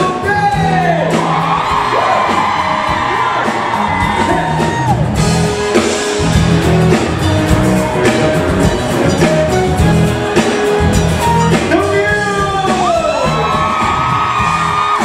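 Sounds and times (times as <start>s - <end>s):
live band playing: 0.0s - 15.0s
audience whooping: 1.1s - 8.3s, 12.7s - 15.0s.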